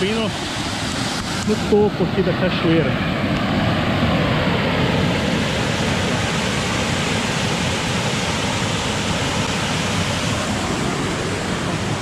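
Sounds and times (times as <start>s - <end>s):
waterfall and rapids rushing: 5.6s - 12.0s.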